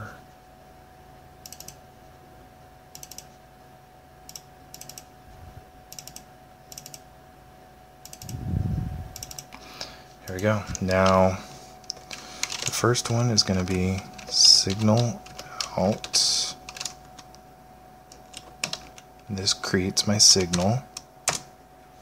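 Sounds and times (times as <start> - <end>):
faint electrical hum: 0.0 - 22.0
computer mouse clicking: 1.4 - 1.8, 3.0 - 3.3, 4.3 - 5.1, 5.9 - 7.0, 8.0 - 8.4, 9.2 - 9.6, 11.9 - 13.2.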